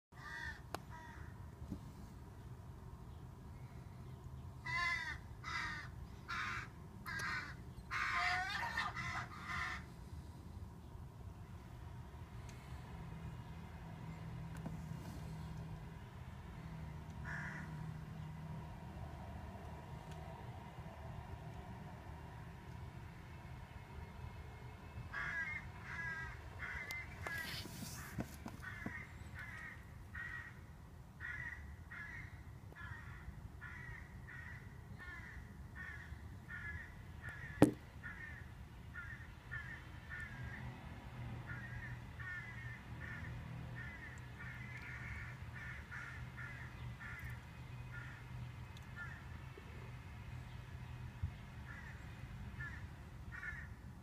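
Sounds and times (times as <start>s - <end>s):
crows cawing: 0.2s - 1.4s, 4.6s - 9.9s, 17.2s - 17.9s, 25.1s - 40.7s, 41.5s - 48.3s, 48.9s - 49.3s, 51.7s - 53.8s
sharp knock: 37.6s - 37.8s.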